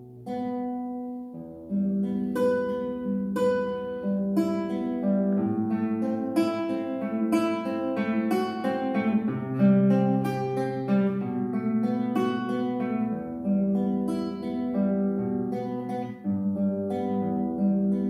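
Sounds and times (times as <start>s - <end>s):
classical guitar fingerstyle: 0.0s - 18.0s.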